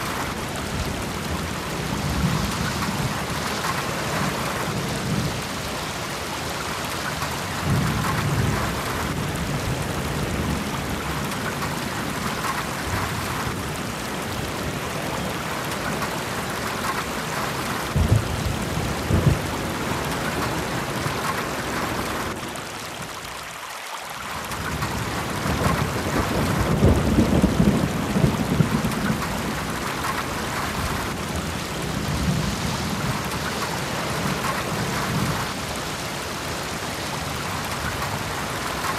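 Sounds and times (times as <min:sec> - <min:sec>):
rain-like hiss: 0:00.0 - 0:38.9
thunder rumbling: 0:07.1 - 0:22.4, 0:24.5 - 0:35.6.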